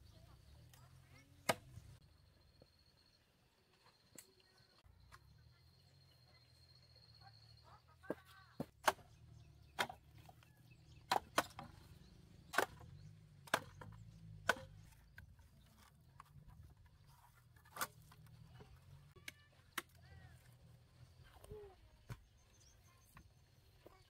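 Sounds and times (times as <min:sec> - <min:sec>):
chopping into wood: 0:01.4 - 0:01.7, 0:08.6 - 0:10.1, 0:11.0 - 0:14.8.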